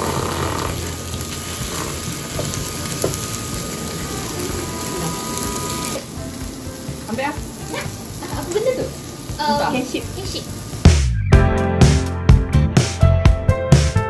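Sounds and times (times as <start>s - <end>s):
eel sizzling on a grill plate: 0.0s - 10.9s.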